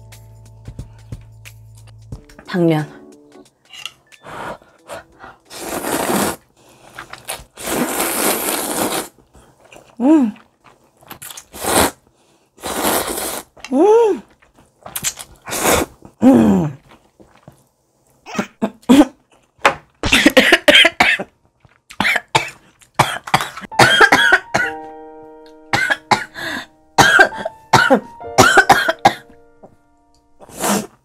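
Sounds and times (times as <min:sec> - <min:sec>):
woman coughing: 0:18.3 - 0:19.2, 0:20.0 - 0:21.3, 0:22.0 - 0:24.7, 0:25.8 - 0:26.4, 0:27.0 - 0:29.3.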